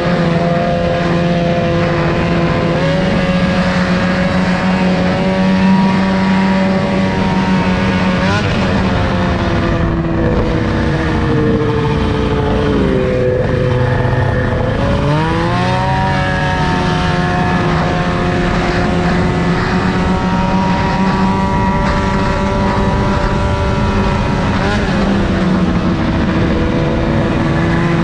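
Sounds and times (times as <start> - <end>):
snowmobile engine running: 0.0 - 28.0
wind noise on microphone: 0.0 - 28.0.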